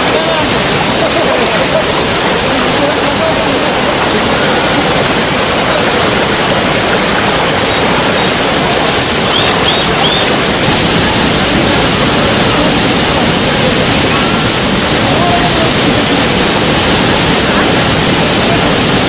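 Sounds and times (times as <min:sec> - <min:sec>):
waterfall rushing: 0:00.0 - 0:19.0
faint high chirps: 0:07.6 - 0:10.5.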